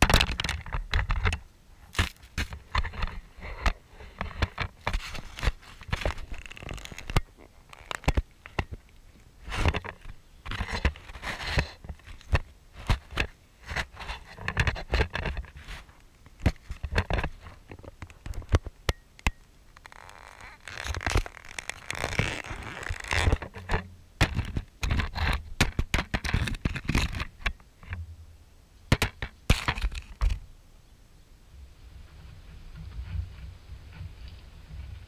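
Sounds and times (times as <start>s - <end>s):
knocks and scraping on camera: 0.0s - 28.0s, 28.9s - 30.4s, 32.1s - 35.0s.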